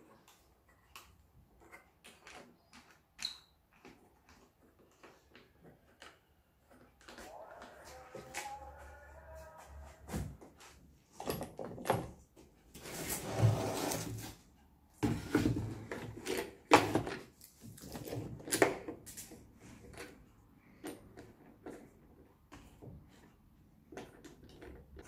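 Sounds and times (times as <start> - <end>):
board scraping across plywood: 12.8 - 14.4.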